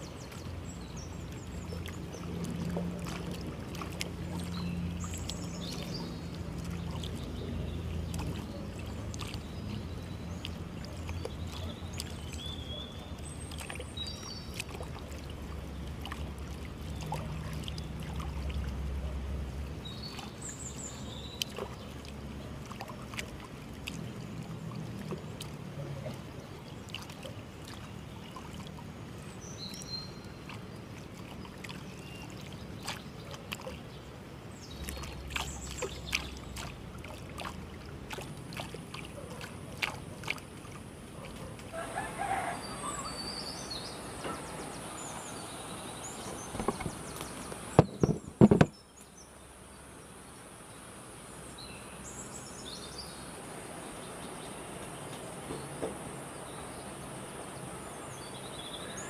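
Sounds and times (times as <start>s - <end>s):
low steady rumble: 0.0s - 26.9s.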